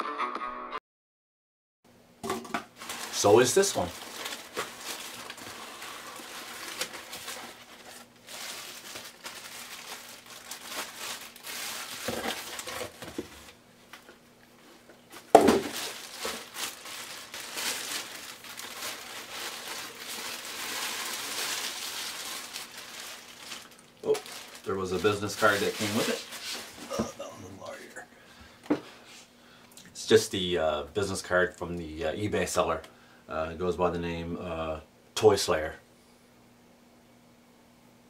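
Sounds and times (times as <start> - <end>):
plastic bag crinkling: 2.7 - 27.1.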